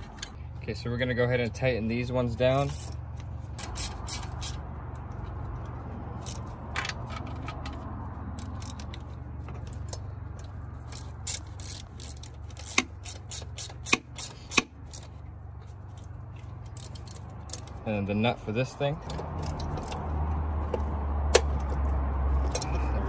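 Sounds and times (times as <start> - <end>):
hand ratchet clicking: 3.6 - 4.6, 10.8 - 15.1
metal tools clinking: 15.9 - 17.8, 19.0 - 20.0.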